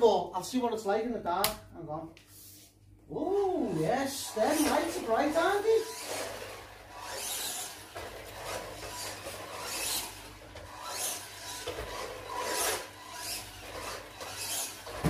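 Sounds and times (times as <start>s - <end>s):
tyres scrubbing on floor: 3.7s - 15.0s
toy truck motor whirring: 4.1s - 15.0s.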